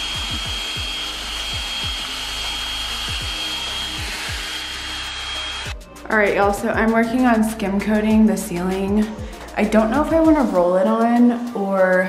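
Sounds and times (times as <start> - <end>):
drill mixer whining: 0.0 - 5.8.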